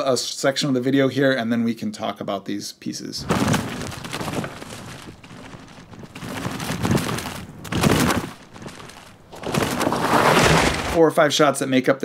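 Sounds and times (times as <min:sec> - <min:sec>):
bike tyres crackling over dirt trail: 0:03.2 - 0:11.0.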